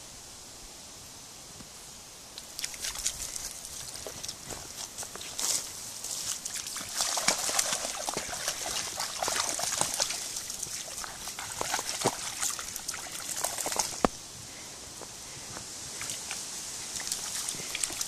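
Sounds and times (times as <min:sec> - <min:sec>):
splashing steps in stream: 0:02.4 - 0:14.2, 0:15.0 - 0:18.0
water trickling: 0:02.4 - 0:14.2, 0:15.9 - 0:18.0.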